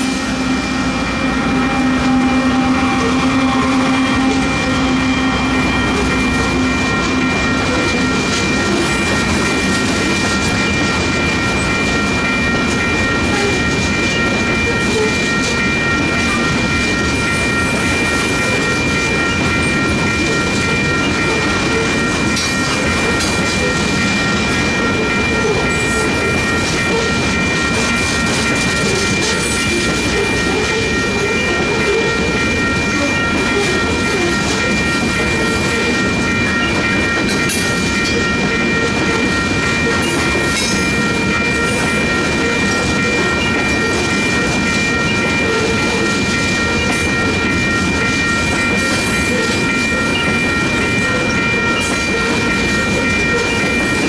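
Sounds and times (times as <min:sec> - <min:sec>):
freight train rumble: 0:00.0 - 0:54.0
high-pitched ringing tone: 0:00.0 - 0:54.0.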